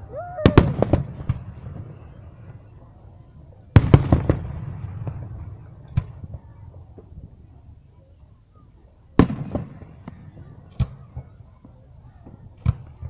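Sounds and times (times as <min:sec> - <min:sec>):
firework bangs: 0:00.0 - 0:02.7, 0:03.7 - 0:06.4, 0:09.2 - 0:11.4.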